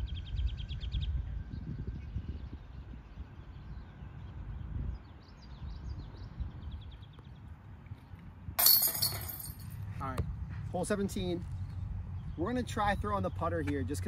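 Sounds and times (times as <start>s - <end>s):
birds chirping: 0.0s - 14.0s
wind rumble on microphone: 0.0s - 14.0s.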